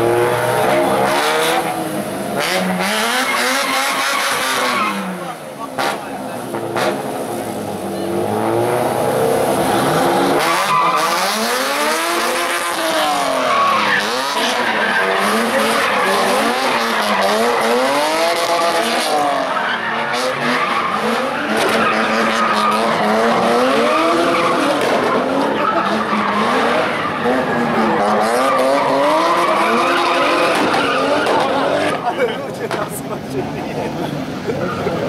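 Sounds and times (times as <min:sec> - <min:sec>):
car engines revving: 0:00.0 - 0:35.0
tyres screeching: 0:09.9 - 0:33.1.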